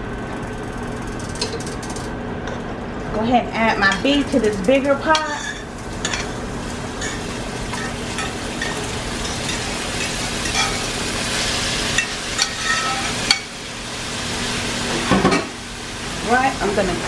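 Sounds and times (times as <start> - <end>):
metal spoon scraping pans: 3.6 - 6.4, 7.0 - 10.9, 12.0 - 13.5
meat sizzling: 3.6 - 17.0.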